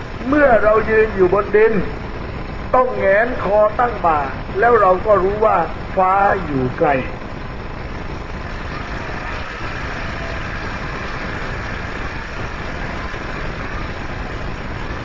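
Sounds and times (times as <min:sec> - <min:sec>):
crowd din: 0:08.0 - 0:15.0.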